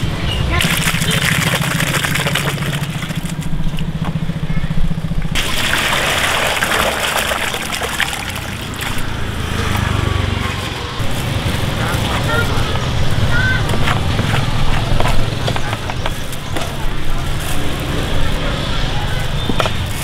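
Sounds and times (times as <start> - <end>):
broth pouring into metal bowl: 5.4 - 9.0.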